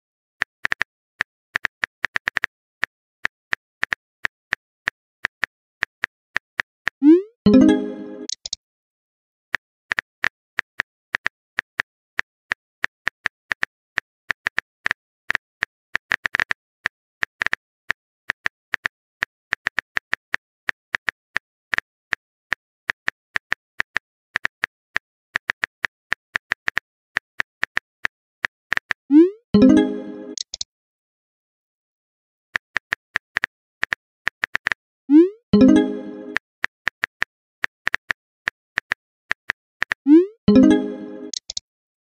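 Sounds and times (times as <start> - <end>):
phone keyboard typing clicks: 7.5 - 8.6, 29.6 - 30.6, 38.8 - 41.6.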